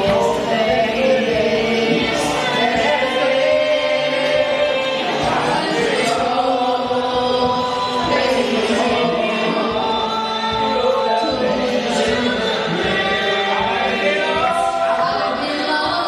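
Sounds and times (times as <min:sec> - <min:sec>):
choir singing: 0:00.0 - 0:16.0.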